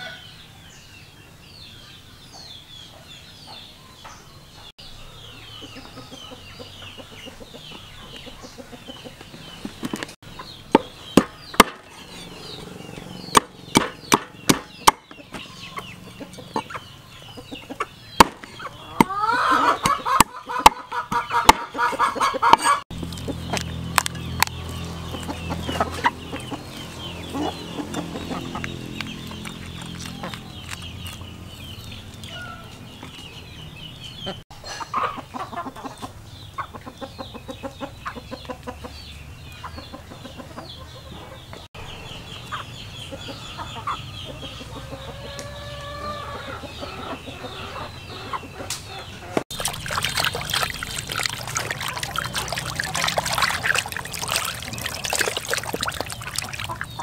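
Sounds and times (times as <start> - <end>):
chickens clucking: 5.5 - 57.0
water splashing in basin: 49.5 - 57.0.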